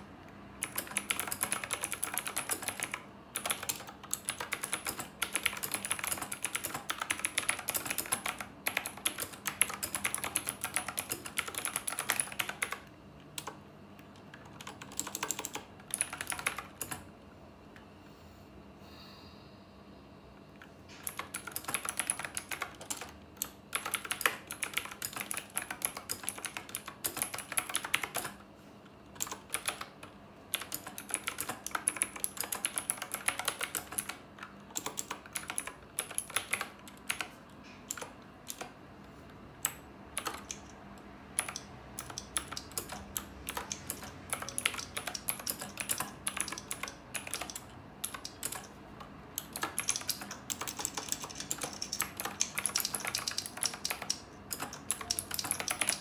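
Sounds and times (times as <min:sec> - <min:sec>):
mechanical keyboard typing: 0:00.5 - 0:17.1, 0:21.0 - 0:28.4, 0:29.1 - 0:38.8, 0:39.6 - 0:56.0.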